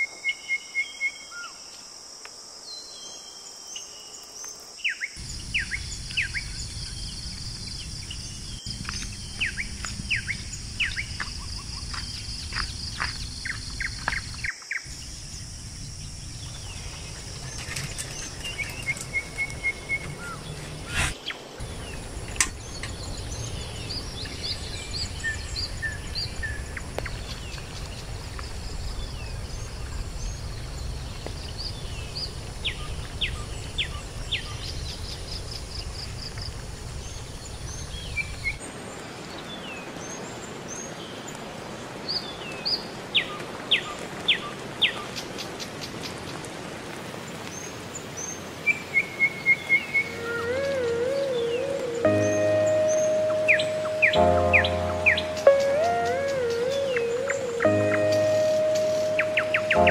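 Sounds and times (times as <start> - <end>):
high insect drone: 4.2 - 38.5
birds chirping and calling: 5.2 - 27.9, 49.8 - 59.9
low rumble: 5.2 - 38.0.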